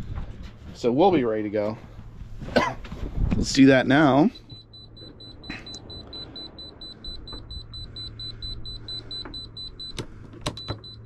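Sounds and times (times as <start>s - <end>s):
rapid high-pitched alarm beeps: 4.3s - 10.0s, 10.6s - 11.0s.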